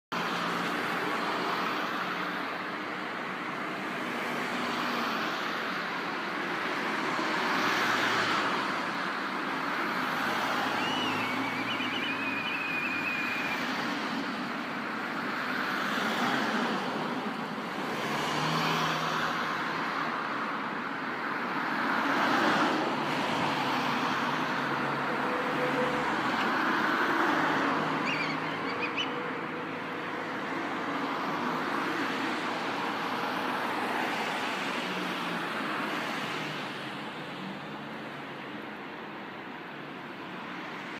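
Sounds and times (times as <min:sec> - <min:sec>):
road traffic: 0:00.0 - 0:40.9
faint whistled bird call: 0:10.7 - 0:13.8, 0:28.0 - 0:29.2.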